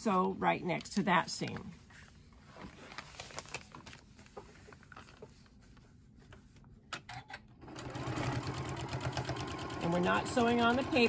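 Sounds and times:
paper and fabric rustling: 0.6 - 6.7.

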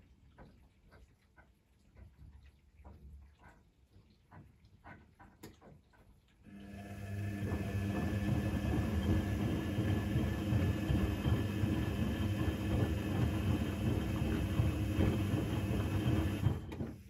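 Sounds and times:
water and laundry churning: 0.0 - 17.0
washing machine motor hum: 6.5 - 17.0.

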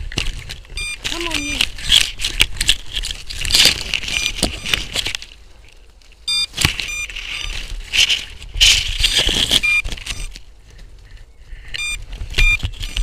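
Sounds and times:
tree branches rustling: 0.0 - 13.0
twigs cracking: 0.0 - 13.0
short electronic beep: 0.8 - 1.5, 6.3 - 7.6, 9.6 - 10.3, 11.8 - 12.6.

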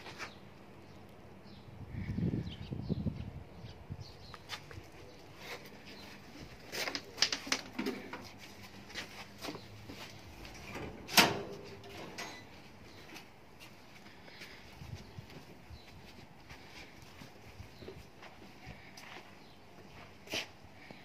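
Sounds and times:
metal kennel door clacking: 10.6 - 12.5.

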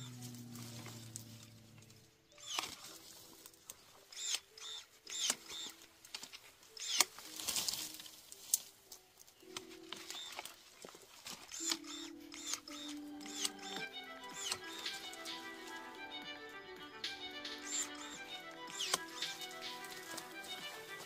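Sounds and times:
low steady hum: 0.0 - 2.4
electric pruning shears snipping: 0.0 - 8.7, 9.4 - 21.0
twigs rustling: 0.0 - 21.0.

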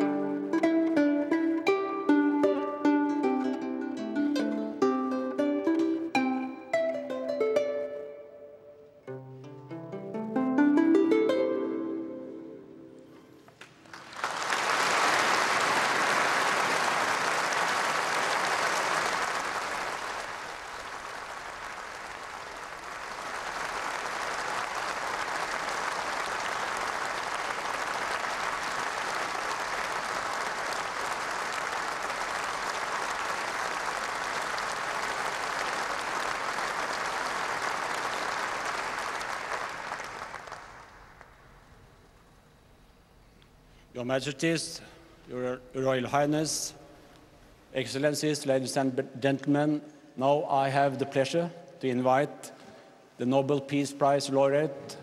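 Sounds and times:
audience applauding: 13.5 - 41.7.

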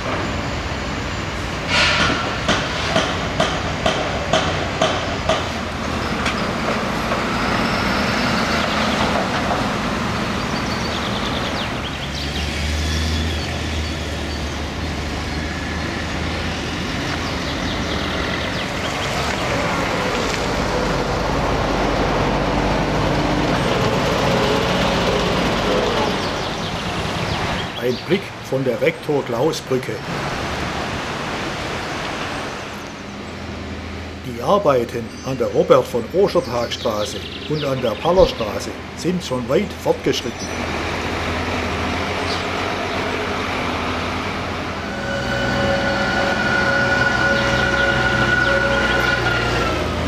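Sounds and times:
traffic: 0.0 - 50.0
sharp metallic knocks: 1.7 - 7.4
deep engine drone: 40.3 - 50.0.

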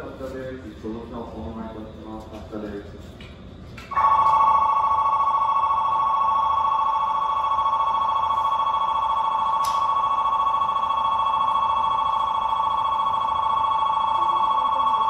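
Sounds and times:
electronic platform bell trilling: 3.9 - 15.0.

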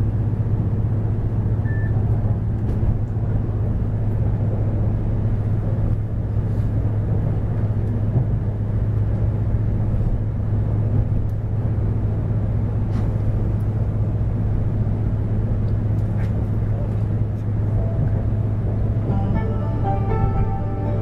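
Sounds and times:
train cabin rumble and hum: 0.0 - 21.0.

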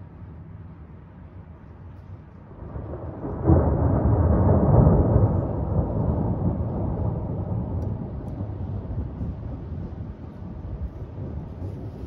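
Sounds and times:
low rolling thunder rumble: 2.4 - 12.0
thunderclap: 2.5 - 12.0.

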